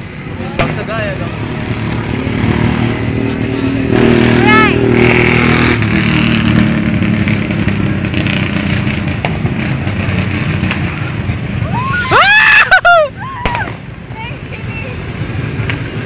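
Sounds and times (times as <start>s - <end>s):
shrill squeals: 11.4s - 12.7s.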